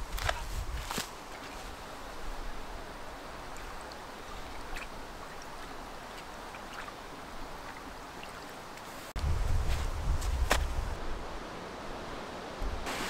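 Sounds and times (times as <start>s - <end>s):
stream babbling over stones: 0.0s - 9.2s.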